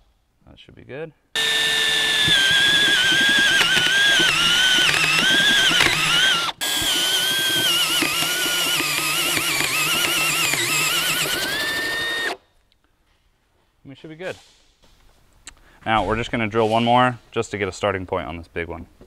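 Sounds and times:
drill cutting through steel: 1.4s - 12.4s.

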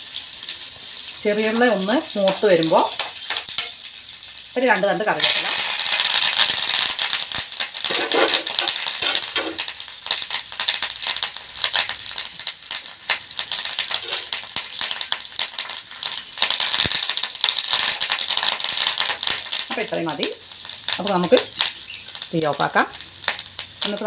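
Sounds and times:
spices crackling in hot oil: 0.0s - 24.0s.

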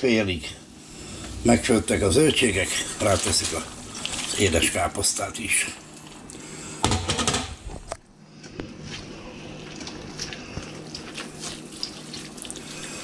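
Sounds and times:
cabbage rustling and squishing: 1.5s - 5.1s, 8.9s - 13.0s.

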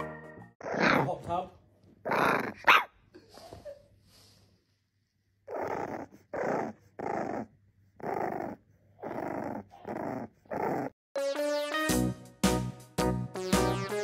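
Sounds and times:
puppy growling grunts: 0.6s - 1.2s, 2.0s - 2.7s, 5.5s - 11.0s.

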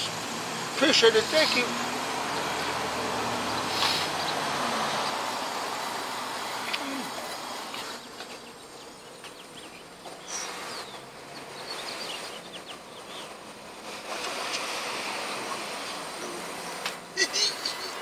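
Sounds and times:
road traffic passing: 0.0s - 18.0s.

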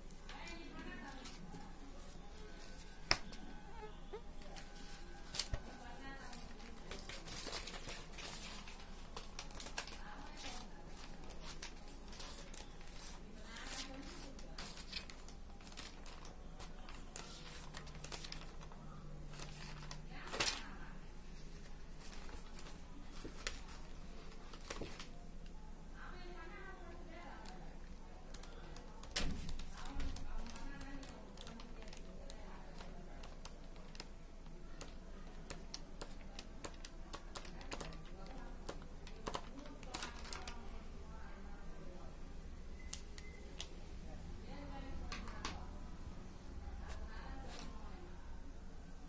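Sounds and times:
faint steady low hum: 0.0s - 49.0s
notebook paper rustling: 0.3s - 25.2s, 28.3s - 40.7s, 46.7s - 48.0s.

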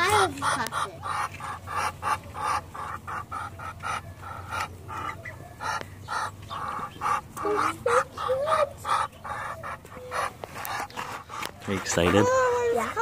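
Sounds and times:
ducks giving breathy calls: 0.1s - 13.0s.

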